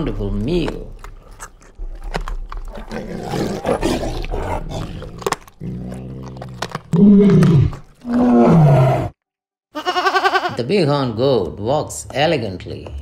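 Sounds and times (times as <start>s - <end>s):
tiger growling: 0.0s - 9.2s
tiger roaring: 1.7s - 9.2s.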